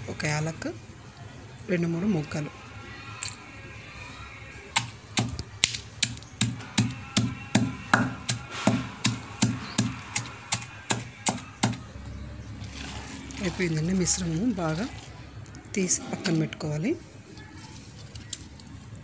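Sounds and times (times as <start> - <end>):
pestle pounding in stone mortar: 6.0 - 11.8.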